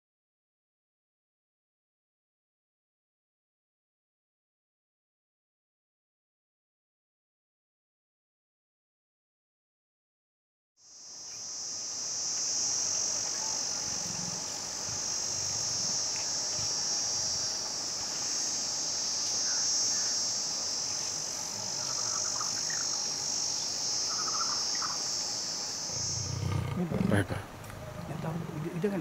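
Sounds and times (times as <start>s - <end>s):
high-pitched insect drone: 10.8s - 27.0s
faint bird chirps: 19.2s - 20.2s, 21.0s - 25.1s.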